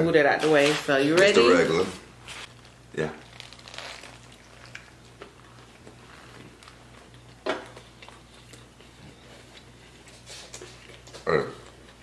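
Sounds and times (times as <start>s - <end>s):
people chewing crunchy food: 2.4s - 12.0s.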